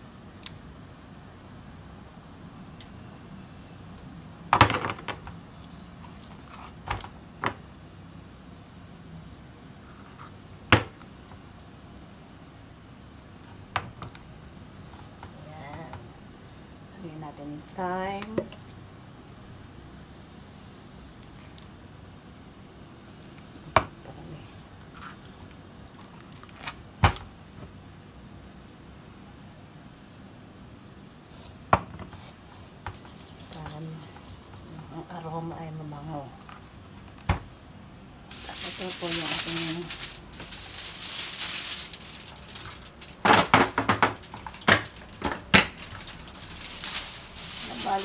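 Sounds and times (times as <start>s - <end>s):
aluminium foil crinkling: 9.8s - 15.9s, 21.2s - 23.6s, 24.2s - 27.4s, 36.3s - 37.3s, 38.3s - 48.0s
hands rubbing spices into fish: 31.3s - 35.0s, 38.3s - 43.2s, 45.8s - 48.0s.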